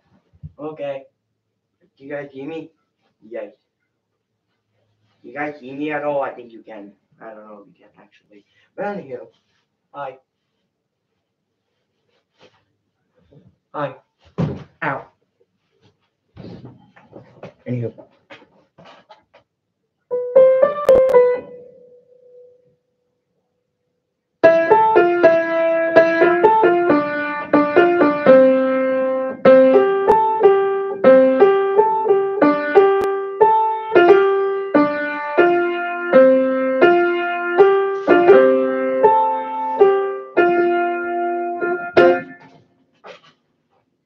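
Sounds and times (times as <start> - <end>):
piano playing chords and melody: 20.1 - 22.5, 24.4 - 42.5.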